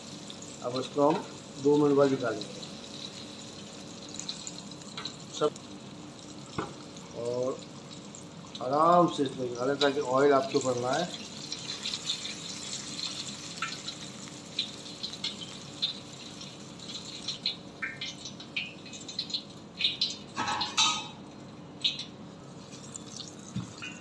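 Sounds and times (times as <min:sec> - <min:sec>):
hot oil sizzling: 0:00.0 - 0:24.0
utensil clattering on metal cookware: 0:20.4 - 0:21.2.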